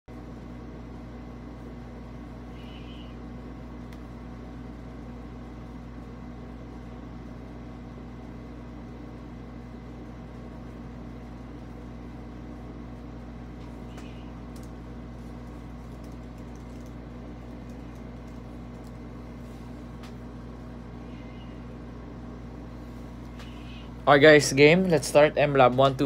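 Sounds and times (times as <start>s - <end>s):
low mechanical hum: 0.1s - 26.0s
faint high chirps: 2.5s - 3.2s.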